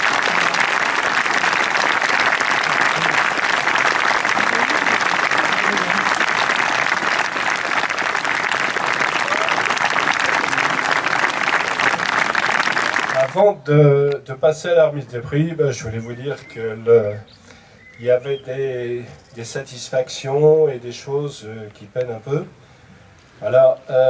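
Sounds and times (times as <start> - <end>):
spectators applauding: 0.0 - 13.4.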